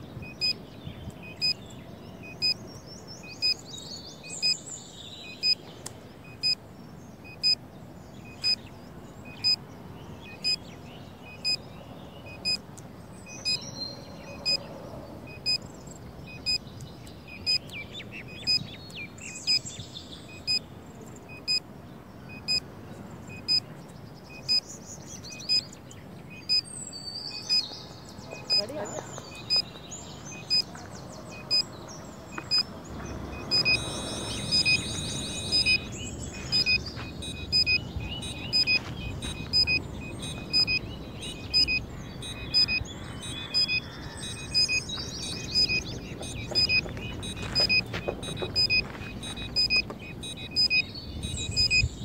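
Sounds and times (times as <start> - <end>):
birds chirping: 0.0 - 52.0.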